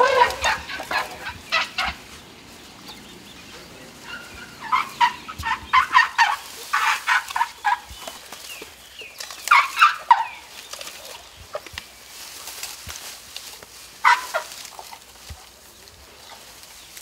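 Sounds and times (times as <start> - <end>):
elephant calves squeaking: 0.0 - 8.3, 9.1 - 11.7.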